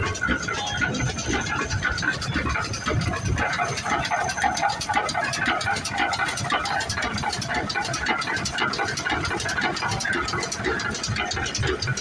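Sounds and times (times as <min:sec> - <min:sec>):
tractor engine clattering: 0:00.0 - 0:12.0.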